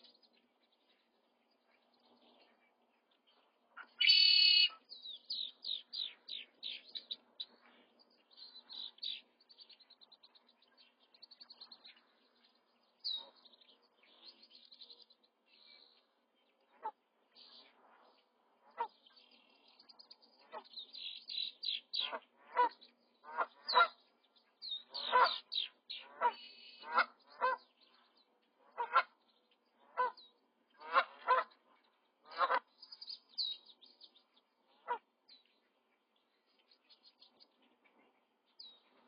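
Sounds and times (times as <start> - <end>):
crane chicks peeping: 19.9 - 28.1, 28.7 - 31.7.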